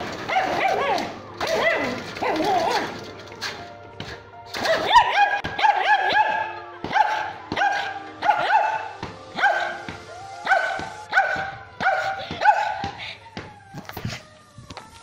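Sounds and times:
small dog barking: 4.7s - 12.9s.

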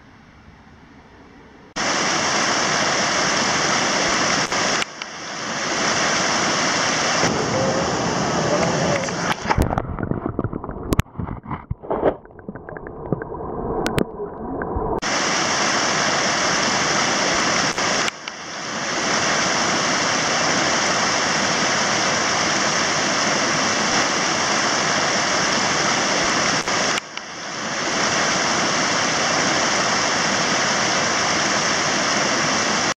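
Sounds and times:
rushing mountain torrent: 1.8s - 9.8s, 15.0s - 33.0s.

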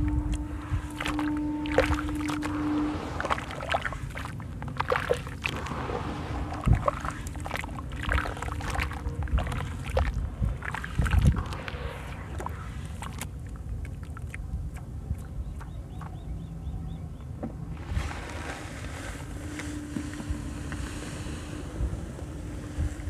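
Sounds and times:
wet slurry sloshing and squelching: 0.0s - 15.3s.

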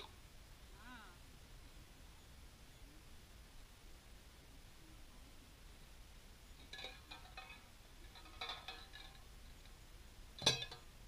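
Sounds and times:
tin cans clinking and rattling: 6.6s - 9.2s, 10.4s - 10.9s.

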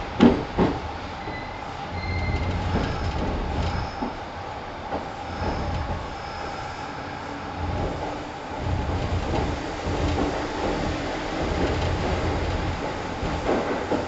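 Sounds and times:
electric train rolling: 0.0s - 14.0s
train wheel squeals: 1.2s - 4.2s.

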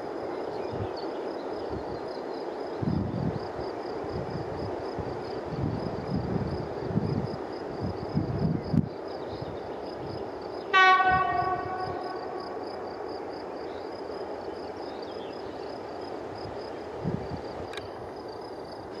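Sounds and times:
locomotive air horn blast: 10.7s - 12.6s.

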